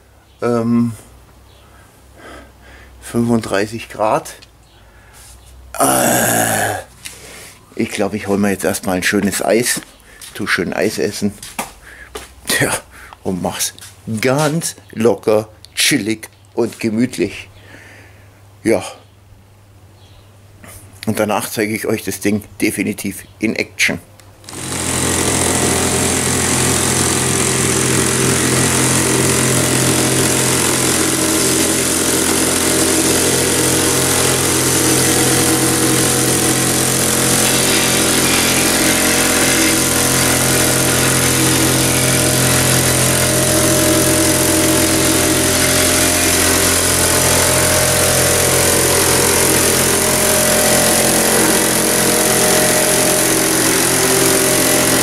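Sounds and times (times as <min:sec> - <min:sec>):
plate compactor engine droning: 0:05.8 - 0:06.8, 0:24.4 - 0:55.0.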